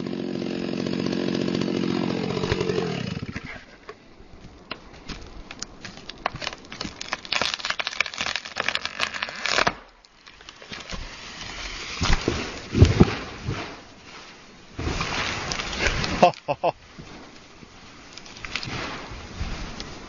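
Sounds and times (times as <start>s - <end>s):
tree crashing: 0.0s - 3.7s, 5.0s - 20.0s
rush of branches: 0.0s - 20.0s
tree wood cracking and popping: 0.2s - 13.8s, 14.8s - 20.0s.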